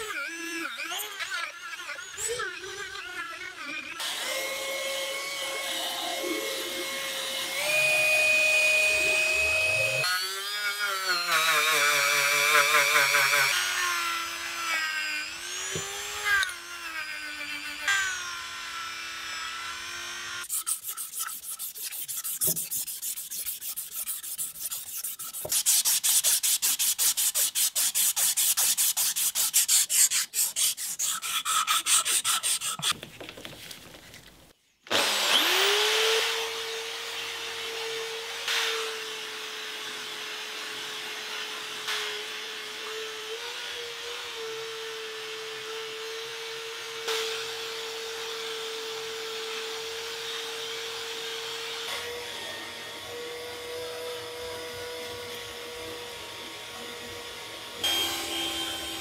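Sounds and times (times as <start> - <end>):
cordless drill whine: 4.0 - 20.5, 51.8 - 59.0
abrasive strip rubbing metal: 20.4 - 33.0.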